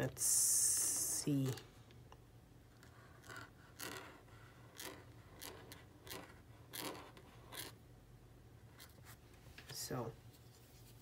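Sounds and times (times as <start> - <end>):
marker scratching on paper: 2.8 - 7.8.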